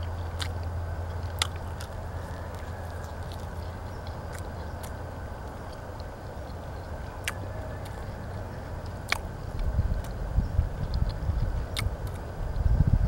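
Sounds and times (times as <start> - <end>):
person chewing food: 0.0 - 12.7
steady low hum: 0.0 - 13.0
mouth clicks: 8.8 - 12.7.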